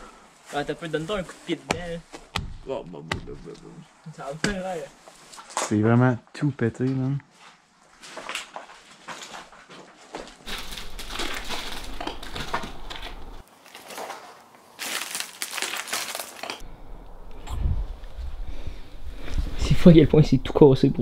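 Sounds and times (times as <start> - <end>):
debris crunching underfoot: 7.9 - 16.6.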